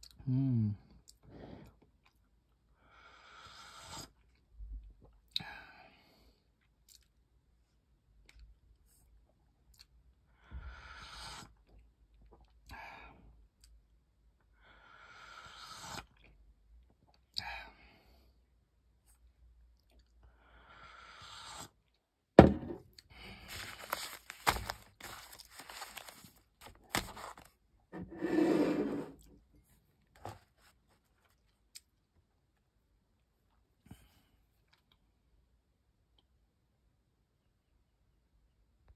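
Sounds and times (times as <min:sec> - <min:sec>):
paper packets rustling: 0:23.3 - 0:27.6
paper scraping across table: 0:23.5 - 0:29.2.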